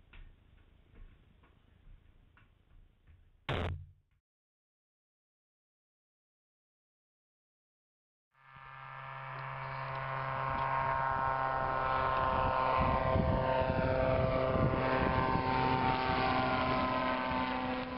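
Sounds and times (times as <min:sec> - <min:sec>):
propeller airplane taking off: 0:08.4 - 0:17.9.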